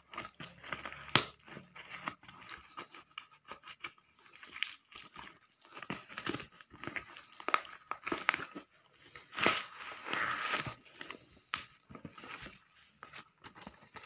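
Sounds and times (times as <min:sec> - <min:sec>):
paper tearing and crinkling: 0:00.1 - 0:11.4.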